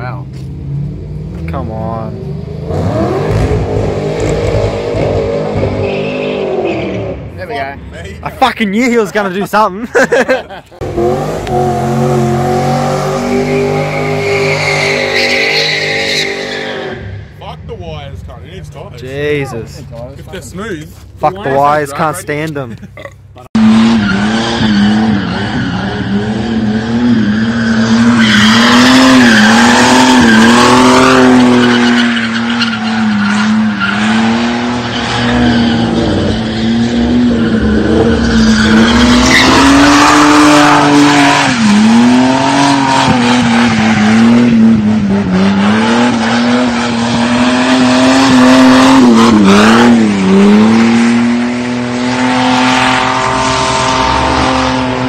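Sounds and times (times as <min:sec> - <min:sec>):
car engine revving high: 0:00.6 - 0:07.4, 0:10.8 - 0:17.3, 0:23.6 - 0:55.0
tyres screeching: 0:10.9 - 0:17.3, 0:27.2 - 0:44.5.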